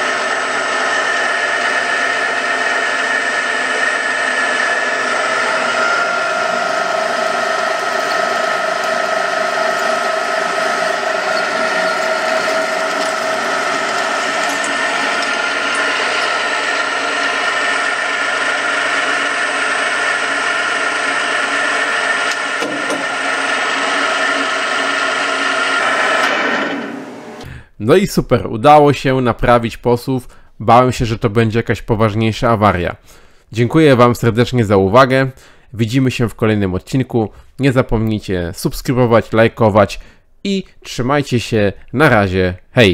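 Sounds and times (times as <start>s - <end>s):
milling machine gear whine: 0.0s - 27.4s.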